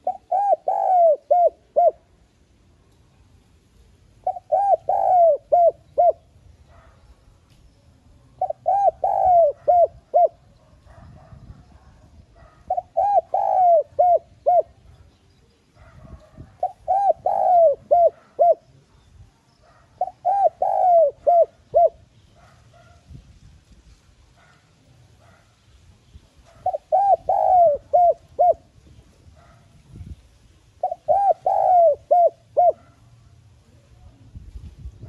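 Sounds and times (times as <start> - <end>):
dove cooing: 0.0 - 2.1, 4.2 - 7.0, 8.4 - 15.0, 15.8 - 18.8, 19.6 - 23.0, 26.5 - 29.7, 30.8 - 33.1.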